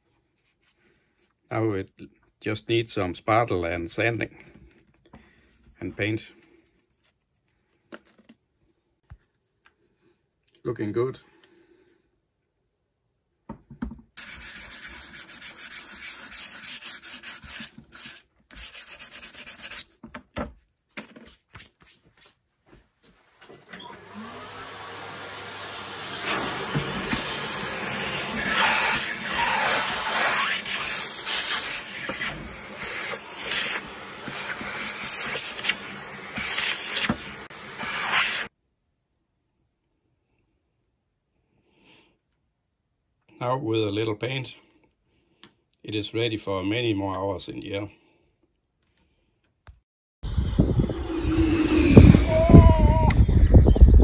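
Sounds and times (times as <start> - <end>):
hand sanding with sanding block: 14.2 - 20.0, 26.7 - 38.5.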